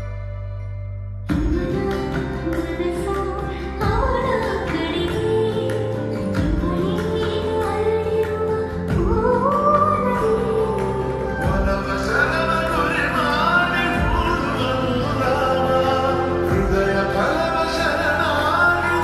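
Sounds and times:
person singing: 1.3s - 19.0s.

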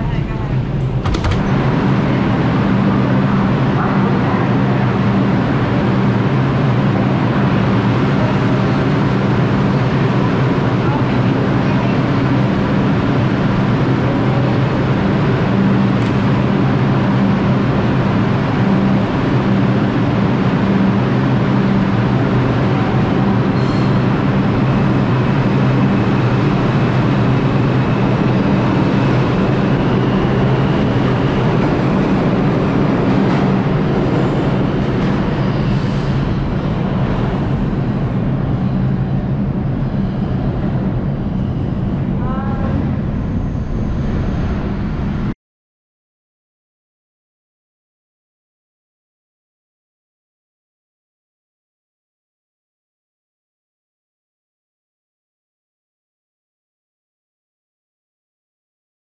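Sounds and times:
subway train rumbling on rails: 0.0s - 45.4s.

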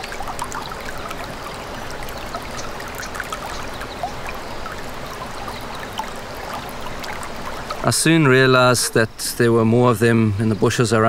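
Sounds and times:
small high ticks and plinks: 0.0s - 7.9s
stream trickling: 0.0s - 11.0s.

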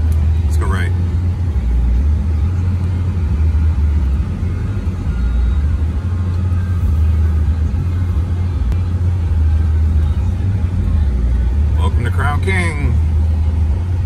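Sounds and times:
vehicle engine rumble: 0.0s - 14.0s.

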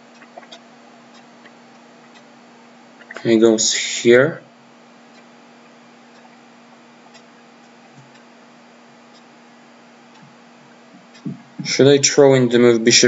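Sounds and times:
faint ticks: 0.0s - 2.3s, 5.1s - 8.4s, 9.0s - 11.8s
electrical hum: 0.0s - 13.0s
steady low hiss: 0.0s - 13.0s.

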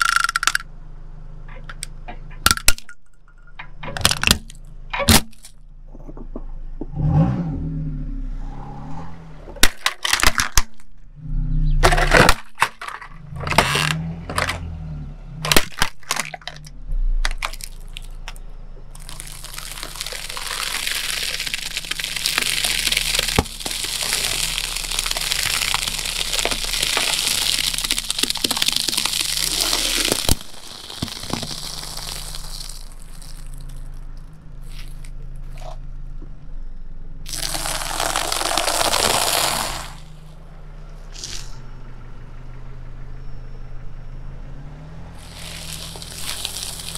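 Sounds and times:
plastic cracking under tyre: 3.8s - 5.6s, 9.5s - 11.0s, 11.8s - 14.7s, 15.4s - 35.9s, 37.2s - 40.3s, 45.2s - 46.9s
crackling plastic snack bag crushed: 9.6s - 10.9s, 11.9s - 14.6s, 15.5s - 35.8s, 37.3s - 40.3s, 45.2s - 46.9s.

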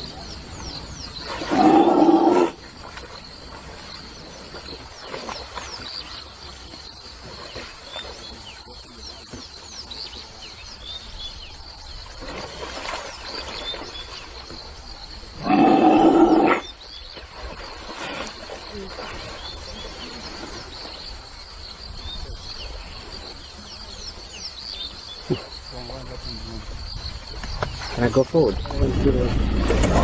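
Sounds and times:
lion growling: 1.4s - 2.6s, 15.4s - 16.6s.

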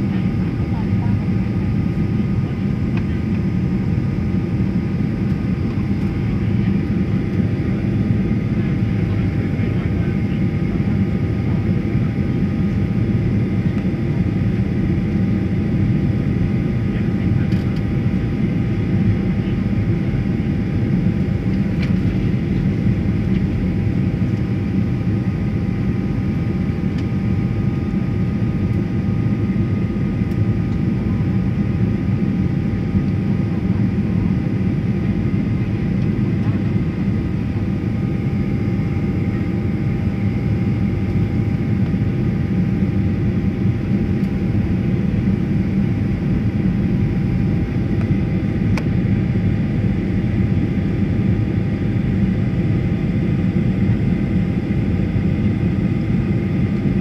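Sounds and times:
jet cabin engine roar: 0.0s - 57.0s.

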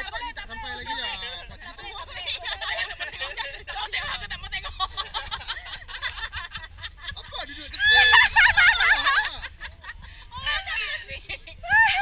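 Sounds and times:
people laughing and chattering: 0.0s - 12.0s
high-pitched shrieking laughter: 7.8s - 9.3s.

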